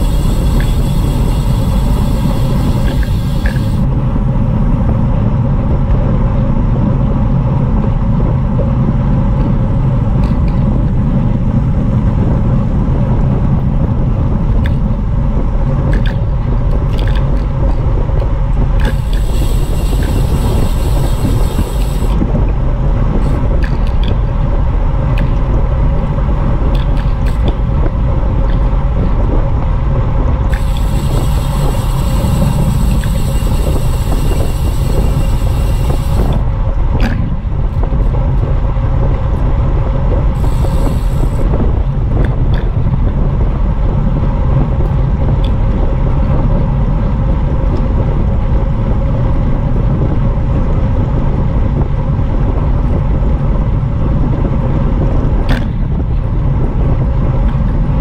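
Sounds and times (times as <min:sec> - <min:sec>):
high hiss: 0:00.0 - 0:03.9, 0:30.5 - 0:36.4, 0:40.4 - 0:41.5
wind buffeting microphone: 0:00.0 - 0:58.0.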